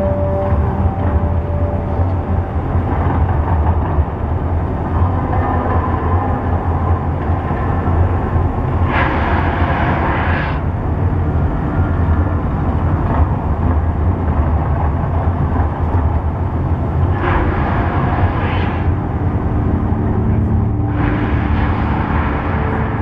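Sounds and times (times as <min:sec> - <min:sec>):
distant street traffic: 0:00.0 - 0:14.2
wind: 0:00.0 - 0:23.0.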